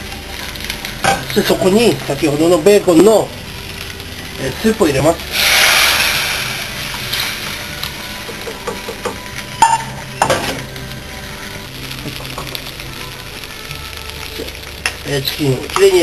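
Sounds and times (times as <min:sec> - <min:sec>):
chicken sizzling in a frying pan: 0:00.0 - 0:16.0
utensil knocking on pan: 0:08.3 - 0:10.6.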